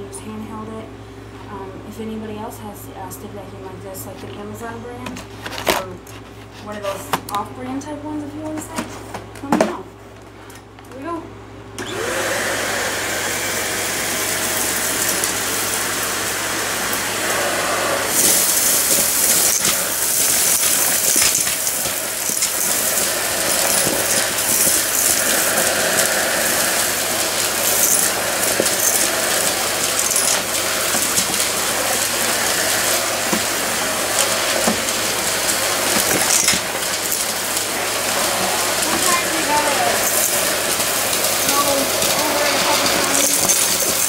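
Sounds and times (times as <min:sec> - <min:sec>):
stick vacuum running: 0:11.7 - 0:44.0
debris rattling through vacuum: 0:12.0 - 0:44.0.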